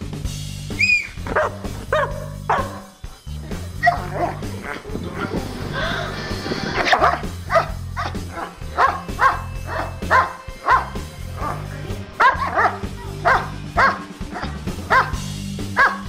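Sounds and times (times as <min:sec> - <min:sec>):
background music: 0:00.0 - 0:16.0
dog barking: 0:01.2 - 0:03.0, 0:03.8 - 0:04.5, 0:06.8 - 0:16.0.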